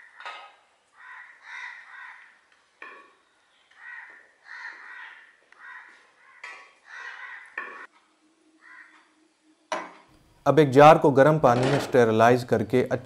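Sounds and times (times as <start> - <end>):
crows cawing: 0.0 - 7.9, 8.6 - 9.2.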